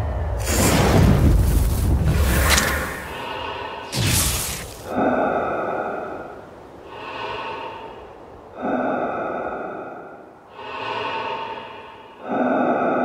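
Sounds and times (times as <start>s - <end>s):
heavy breathing through respirator: 2.6s - 13.0s.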